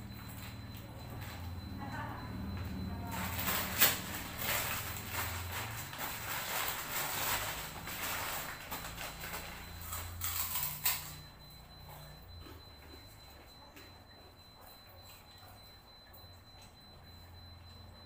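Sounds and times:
plastic bag crinkling: 3.1 - 11.2.

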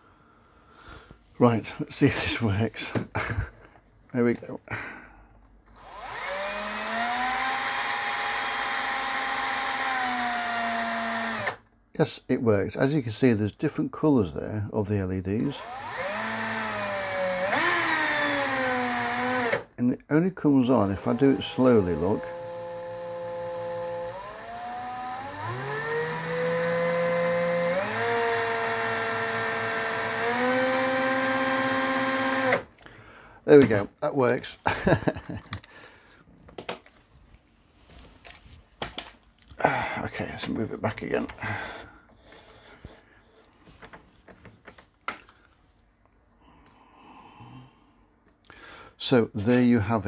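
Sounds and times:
electric drill motor whining: 5.7 - 11.6, 15.4 - 19.7, 21.0 - 32.7.

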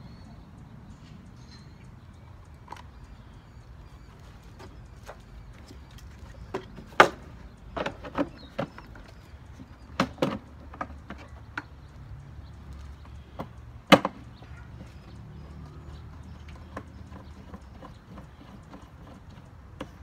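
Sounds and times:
hard plastic clunks and clicks: 6.2 - 11.8, 13.0 - 15.0.

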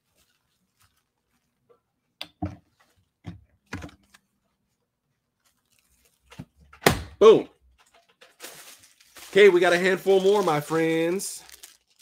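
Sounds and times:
fabric rustling: 0.0 - 1.7.

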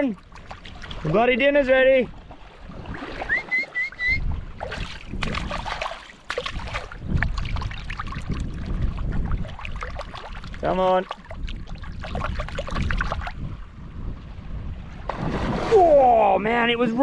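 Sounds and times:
water splashing and sloshing: 0.0 - 17.0
short high chirps: 3.2 - 4.2.

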